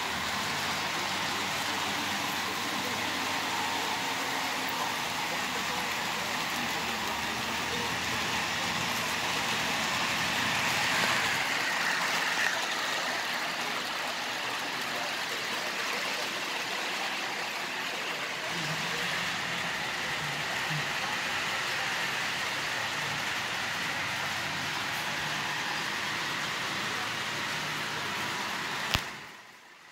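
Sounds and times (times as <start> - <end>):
model train motors whirring: 0.0 - 29.9.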